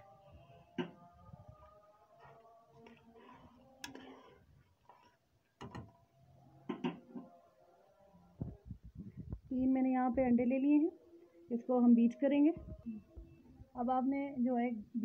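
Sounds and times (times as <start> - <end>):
spoon knocking against pot: 5.6 - 5.9, 6.7 - 7.0.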